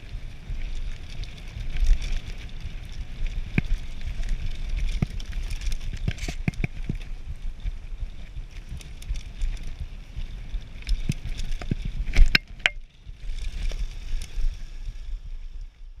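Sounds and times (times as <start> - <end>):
wind rumble on microphone: 0.0 - 16.0
bike chain rattles and knocks: 0.4 - 12.9.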